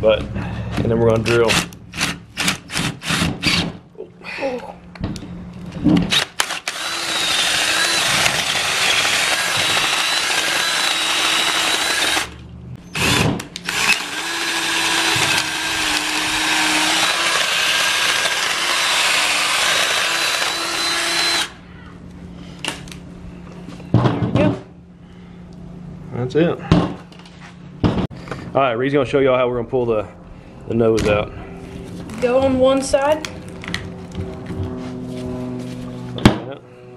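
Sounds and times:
cordless drill grinding bone: 6.1s - 21.6s.

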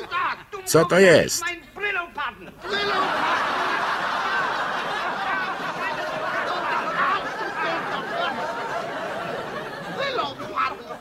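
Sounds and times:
audience laughing: 2.6s - 11.0s.

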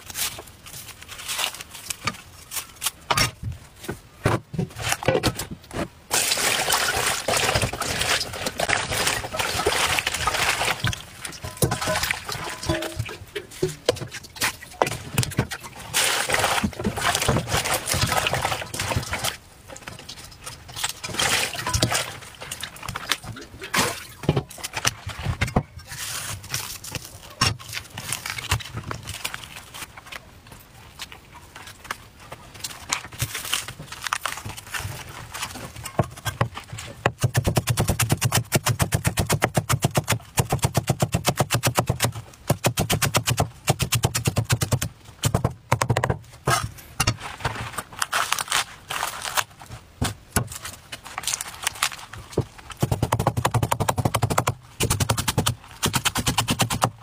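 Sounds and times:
rustling garlic stalks on board: 0.0s - 21.8s, 46.4s - 53.8s.

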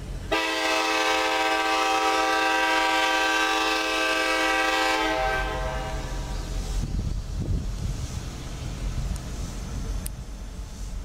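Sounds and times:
locomotive air horn blast: 0.3s - 6.4s.

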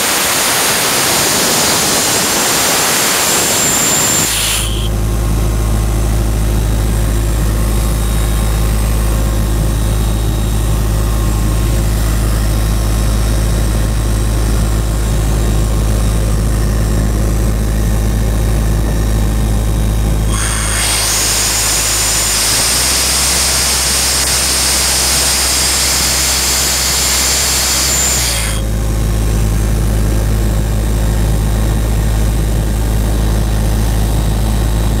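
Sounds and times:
air compressor engine running: 0.0s - 35.0s
compressed air hissing out: 0.1s - 4.9s, 20.3s - 28.7s.

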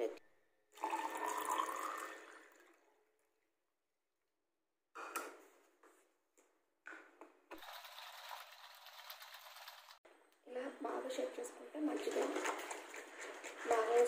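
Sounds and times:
liquid shaken in plastic shaker: 7.6s - 10.0s, 11.9s - 14.0s.

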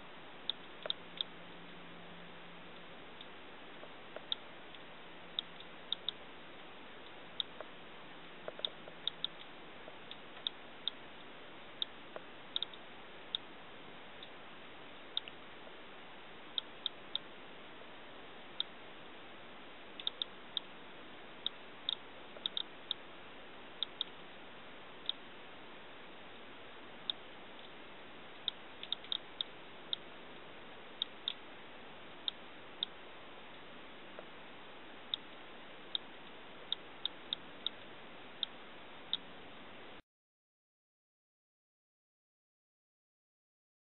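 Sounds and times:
geiger counter clicking: 4.2s - 6.2s, 8.4s - 13.5s, 20.0s - 20.7s, 21.4s - 23.0s, 23.8s - 24.2s, 28.4s - 30.1s.

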